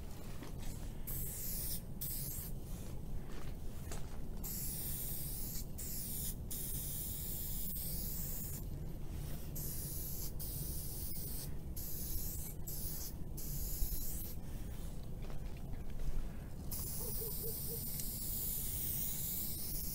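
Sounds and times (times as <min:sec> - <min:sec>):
low steady rumble: 0:00.0 - 0:04.5, 0:05.6 - 0:19.1
spray can hissing: 0:01.1 - 0:02.5, 0:04.4 - 0:08.6, 0:09.6 - 0:14.4, 0:16.7 - 0:19.9.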